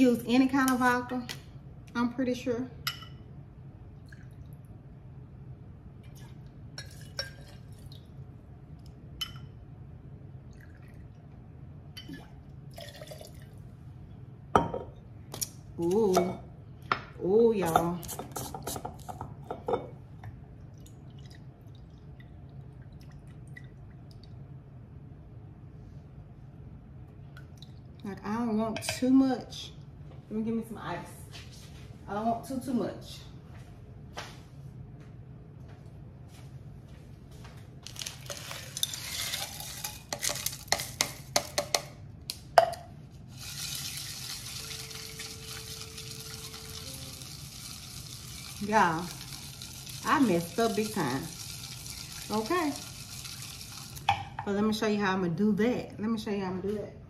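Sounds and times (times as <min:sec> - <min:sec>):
low steady hum: 0:00.0 - 0:57.0
liquid poured over ice: 0:12.7 - 0:13.6, 0:43.3 - 0:54.1.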